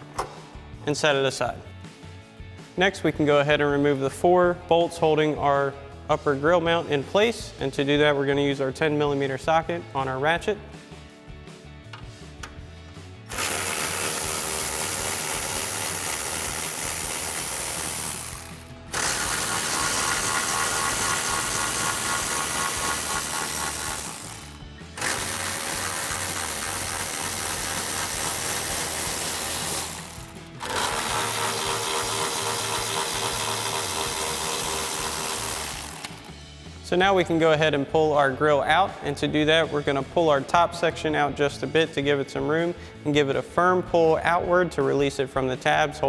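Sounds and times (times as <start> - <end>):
cordless electric ratchet running: 13.3 - 36.3.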